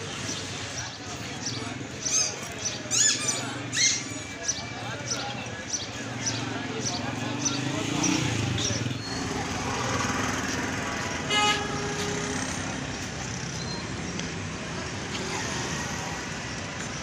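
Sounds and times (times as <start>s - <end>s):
crowd chatter: 0.0s - 17.0s
motor rickshaw and motorbike engines: 0.0s - 17.0s
vehicle horn tooting: 11.2s - 12.6s.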